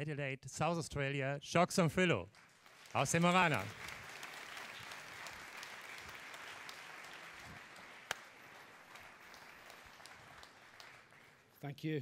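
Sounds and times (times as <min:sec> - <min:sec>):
audience applauding: 0:02.4 - 0:11.6.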